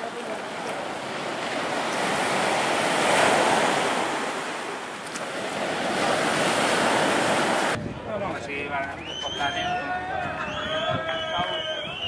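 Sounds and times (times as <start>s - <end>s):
waves washing up a beach: 0.0s - 7.8s.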